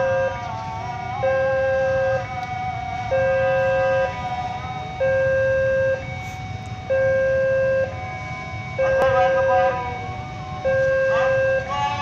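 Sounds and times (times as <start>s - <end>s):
two-tone electronic warning signal: 0.0s - 12.0s.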